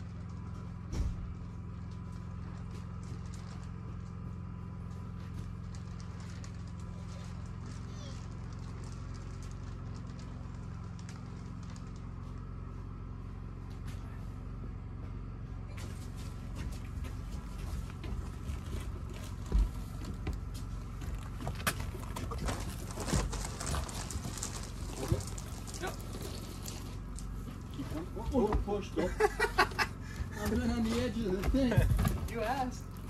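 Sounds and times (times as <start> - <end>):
steady low hum: 0.0 - 33.0
straw rustling: 20.9 - 28.2.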